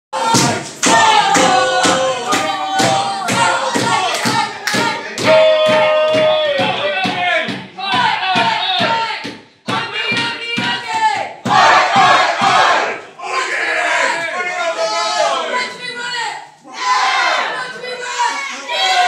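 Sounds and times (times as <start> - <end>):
drum kit beat: 0.2 - 12.9.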